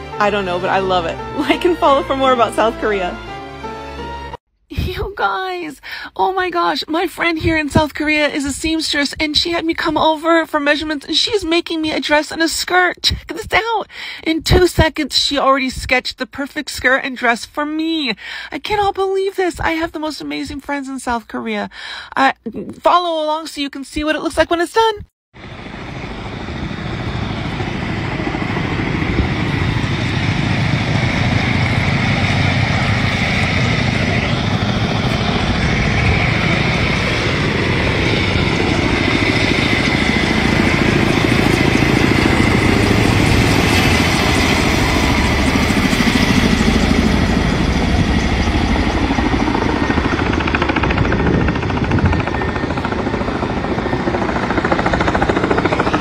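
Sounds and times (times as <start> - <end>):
helicopter rotors and turbines: 0.0 - 56.0.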